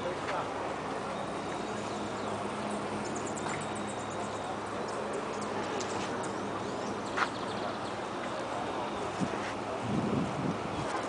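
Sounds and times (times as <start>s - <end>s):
outdoor background noise: 0.0s - 11.0s
steady low hum: 0.0s - 11.0s
small birds chirping: 1.0s - 9.5s.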